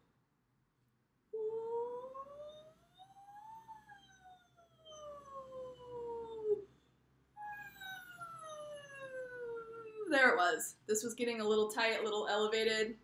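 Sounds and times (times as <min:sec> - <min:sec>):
woman singing vocal siren: 0:01.4 - 0:04.2, 0:04.9 - 0:06.6.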